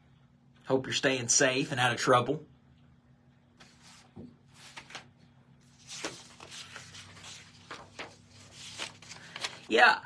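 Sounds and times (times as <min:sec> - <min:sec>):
faint steady hum: 0:00.0 - 0:10.0
paper sheets rustling: 0:03.6 - 0:09.8.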